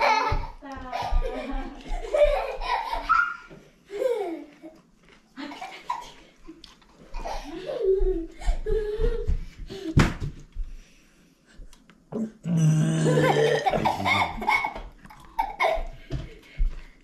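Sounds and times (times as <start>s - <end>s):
child laughing: 0.0s - 4.8s, 7.1s - 9.9s, 13.0s - 16.0s
man's long low vocal sound: 12.4s - 14.2s.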